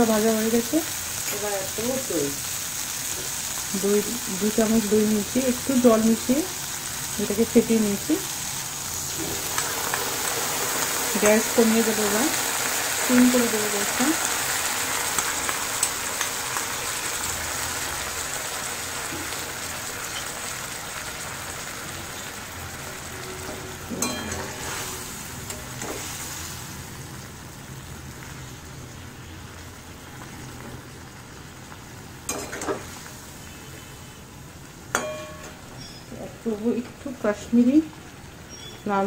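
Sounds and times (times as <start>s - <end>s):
curry sizzling in a pan: 0.0s - 39.0s
metal spatula scraping a pan: 23.2s - 25.2s.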